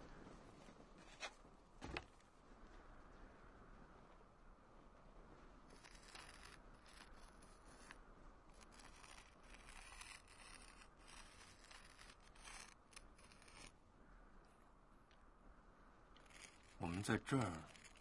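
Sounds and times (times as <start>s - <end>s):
scratchy scraping on stone: 5.7s - 13.8s, 16.2s - 18.0s.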